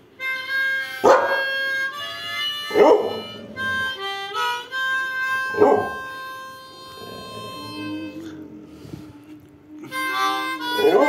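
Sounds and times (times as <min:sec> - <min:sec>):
harmonica chords: 0:00.0 - 0:11.0
dog howling: 0:05.5 - 0:06.0, 0:06.9 - 0:08.7, 0:10.8 - 0:11.0.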